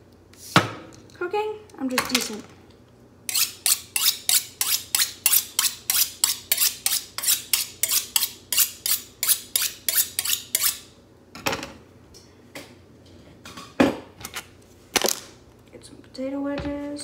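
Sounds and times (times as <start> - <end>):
knife honing on steel: 3.3 - 10.8.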